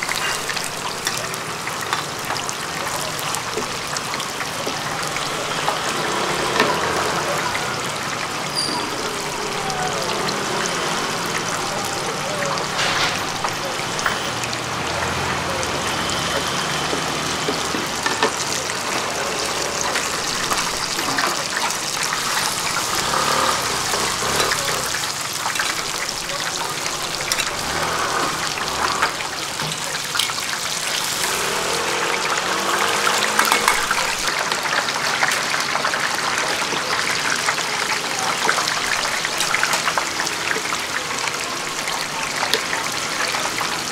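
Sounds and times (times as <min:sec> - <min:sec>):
fritters sizzling in hot oil: 0:00.0 - 0:43.9.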